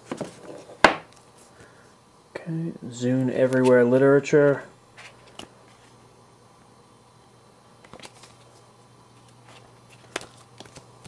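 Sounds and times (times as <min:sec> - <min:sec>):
paper leaflets rustling: 0:07.8 - 0:10.9.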